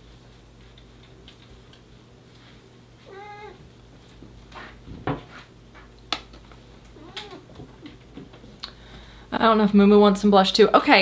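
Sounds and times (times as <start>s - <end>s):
cat meowing: 3.1s - 3.6s, 7.0s - 7.5s.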